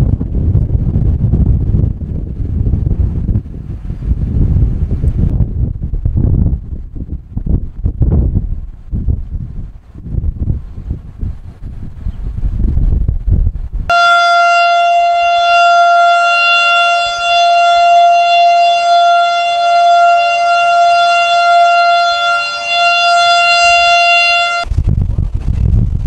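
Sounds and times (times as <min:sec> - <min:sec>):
warning siren steady tone: 0:13.9 - 0:24.7.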